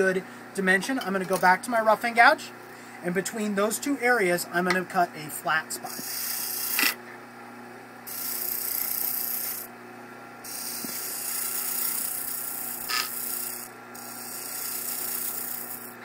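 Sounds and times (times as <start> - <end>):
wood lathe humming: 5.9 - 7.0, 8.1 - 9.7, 10.4 - 16.0
gouge shaving wood on lathe: 8.1 - 9.6, 10.5 - 16.0.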